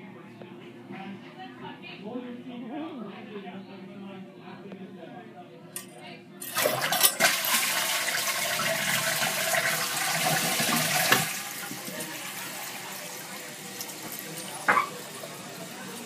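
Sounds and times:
toilet flushing water rushing: 0:06.5 - 0:16.0.

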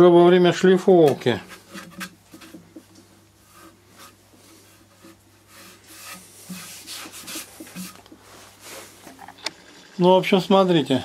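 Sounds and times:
hand brushing wooden bowl: 0:01.0 - 0:09.2.

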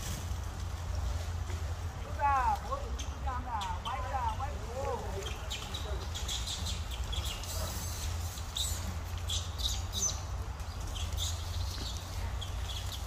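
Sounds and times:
animal chirps and squeaks: 0:02.8 - 0:13.0.

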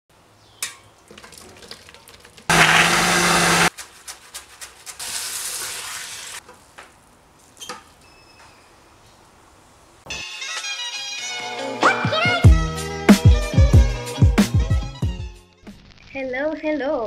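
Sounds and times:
blender running: 0:02.5 - 0:03.7
sizzling in a wok: 0:05.0 - 0:06.4.

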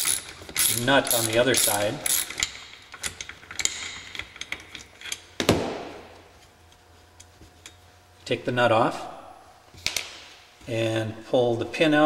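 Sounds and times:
ratchet wrench clicks: 0:00.0 - 0:05.2.

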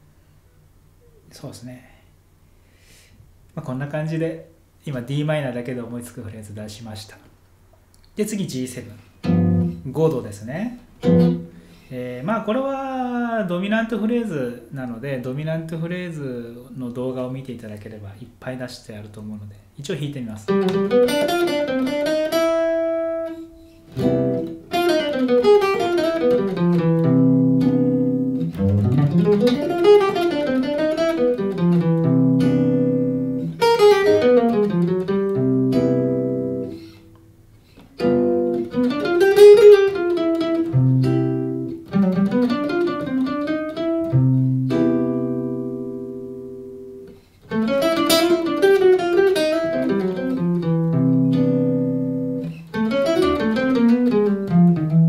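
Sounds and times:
jazz guitar playing: 0:09.2 - 0:09.9, 0:11.0 - 0:11.7, 0:20.5 - 0:55.0.

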